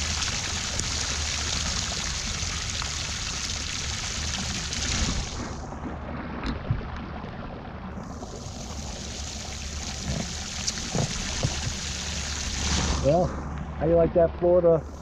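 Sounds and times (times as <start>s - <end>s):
heavy rain on water and deck: 0.0s - 5.6s, 8.1s - 13.4s.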